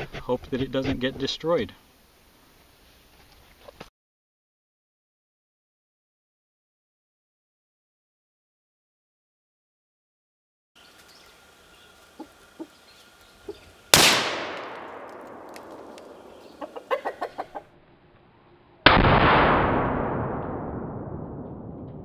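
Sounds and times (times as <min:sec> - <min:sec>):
rifle shots with echo: 0:13.9 - 0:16.7, 0:18.9 - 0:21.9.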